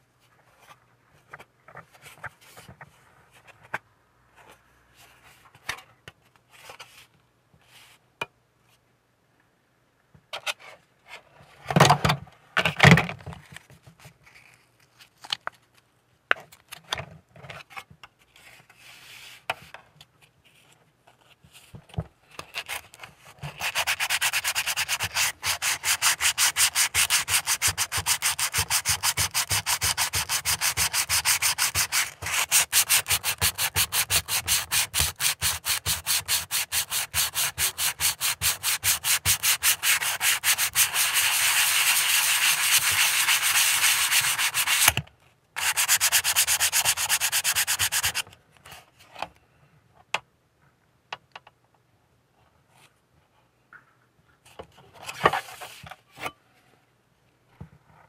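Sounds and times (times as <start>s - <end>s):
hand-sanding plastic rasping: 23.5s - 45.0s, 45.6s - 48.2s.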